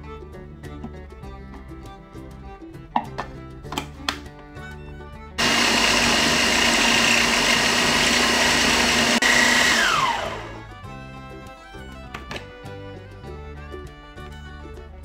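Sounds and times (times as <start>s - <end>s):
plastic lid clicks: 3.0s - 4.3s, 12.1s - 12.5s
food processor motor running: 5.4s - 10.8s.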